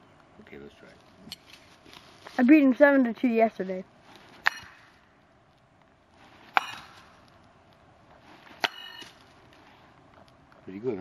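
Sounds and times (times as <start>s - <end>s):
knives striking tree trunk: 4.2s - 5.0s, 6.4s - 7.4s, 8.5s - 9.3s.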